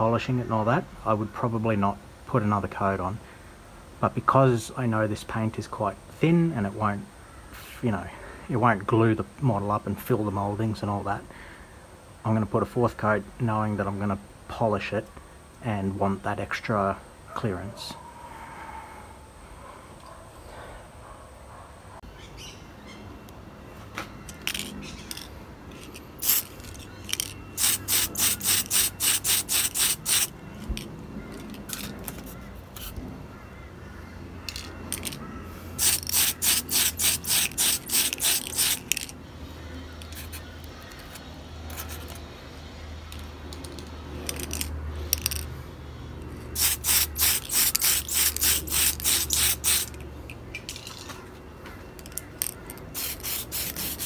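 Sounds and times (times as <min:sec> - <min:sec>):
spray can hissing bursts: 0:26.2 - 0:26.6, 0:27.5 - 0:30.3, 0:35.8 - 0:39.1, 0:46.6 - 0:50.0, 0:52.9 - 0:54.0.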